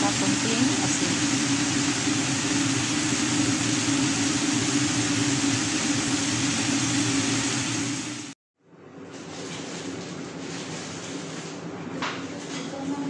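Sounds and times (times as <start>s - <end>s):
extractor fan humming: 0.0s - 8.4s.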